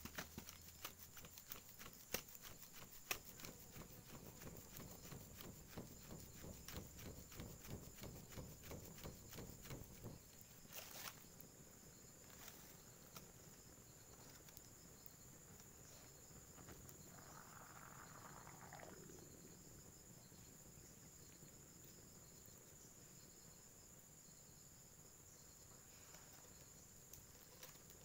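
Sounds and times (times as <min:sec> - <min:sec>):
fire crackling: 0:00.0 - 0:19.2
insect trill: 0:00.0 - 0:28.0.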